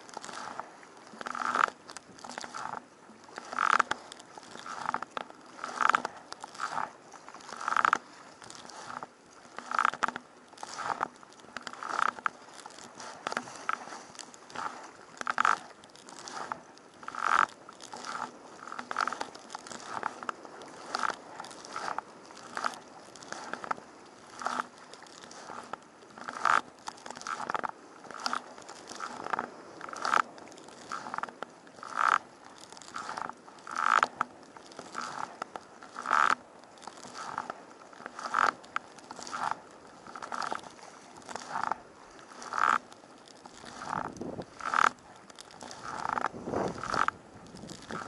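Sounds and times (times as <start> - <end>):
kayak creaking clicks: 0.0 - 48.0
kayak paddle strokes splashing: 0.0 - 48.0
sea noise: 0.0 - 48.0.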